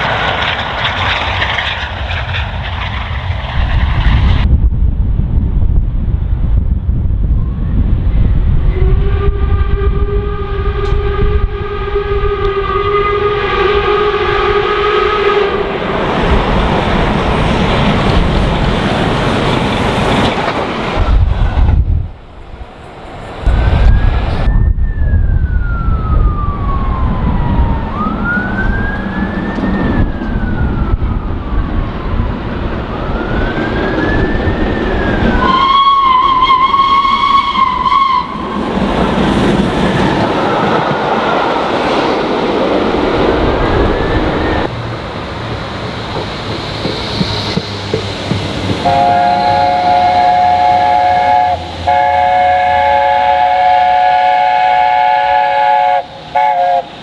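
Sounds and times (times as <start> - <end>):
train rail noise: 0.0 - 57.0
train horn: 8.6 - 15.9, 35.4 - 38.6, 48.8 - 57.0
steam locomotive whistle: 8.7 - 15.7, 33.8 - 38.6, 48.8 - 57.0
siren wailing: 23.8 - 38.5.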